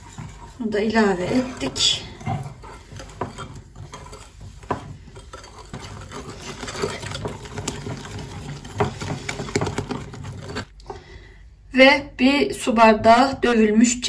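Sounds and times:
whisk scraping glass bowl: 0.0s - 10.8s.

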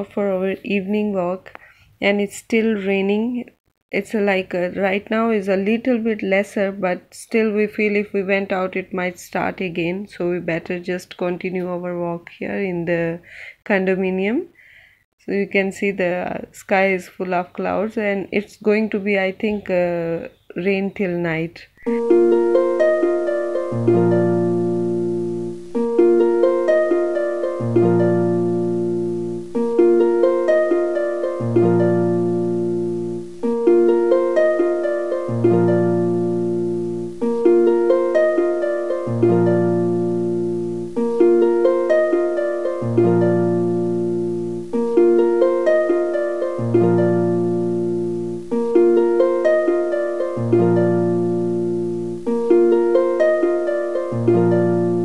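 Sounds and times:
looping plucked-string tune: 21.9s - 55.0s.

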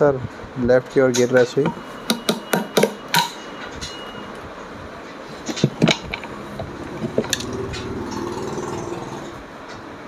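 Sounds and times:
sharp metal knocks and clicks: 1.1s - 4.0s, 5.4s - 8.4s.

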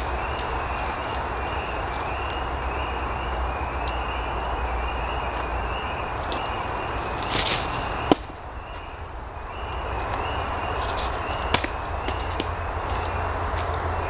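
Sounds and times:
foot scuffing on dirt: 10.0s - 13.9s.

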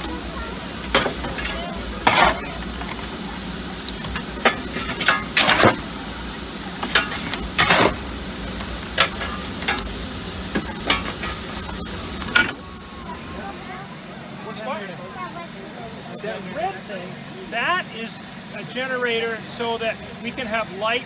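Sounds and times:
steam hiss: 0.0s - 21.0s
sharp scraping and clattering: 0.9s - 3.0s, 4.0s - 5.8s, 6.8s - 12.6s.

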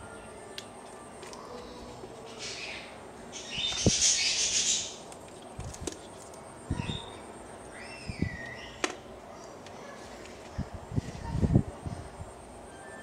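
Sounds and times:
wires and plugs rustling: 5.1s - 6.5s.

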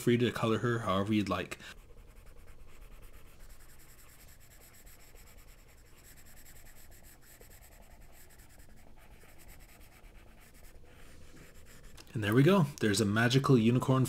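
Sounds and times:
pen scratching on paper: 1.7s - 12.1s.

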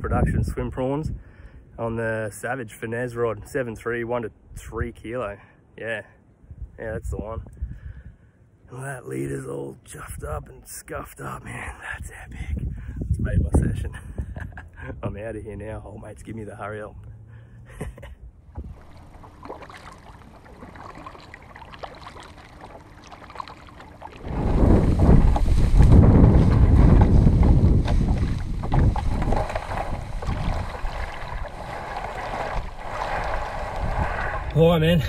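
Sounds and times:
wind buffeting microphone: 0.0s - 1.4s, 6.4s - 8.2s, 11.9s - 15.9s, 18.5s - 23.1s, 23.9s - 35.0s
quiet water sounds: 13.6s - 35.0s.

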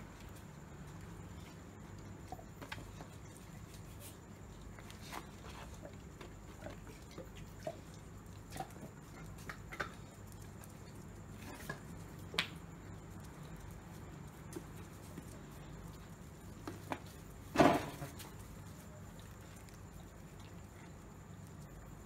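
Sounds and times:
steady low hum: 0.0s - 22.0s
dogs chewing and licking: 0.8s - 22.0s.

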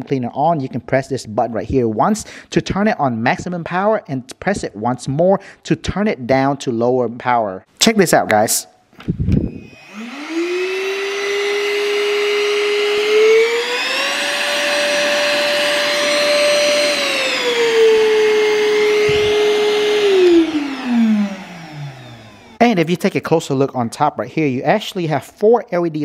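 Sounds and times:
handheld vacuum motor whining: 9.0s - 22.6s.

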